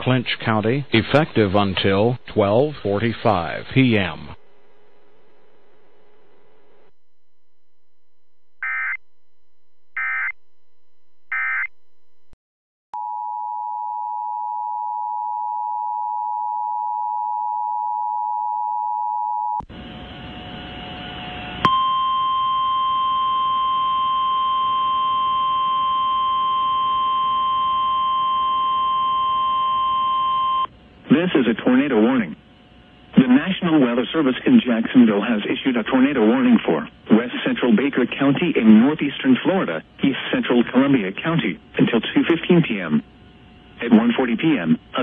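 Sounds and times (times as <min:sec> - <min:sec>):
radio static: 0:00.0 - 0:06.9, 0:33.2 - 0:43.0, 0:43.8 - 0:45.0
single-tone warning alarm: 0:20.2 - 0:30.7.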